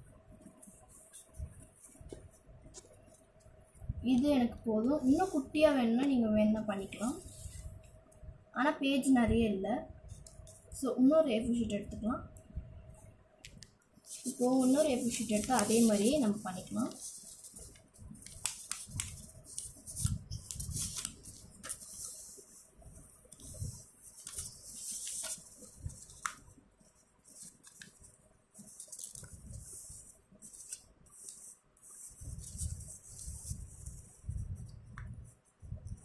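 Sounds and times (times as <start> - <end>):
paper rustling and sliding: 0.4 - 3.2, 14.1 - 26.5, 27.2 - 34.4.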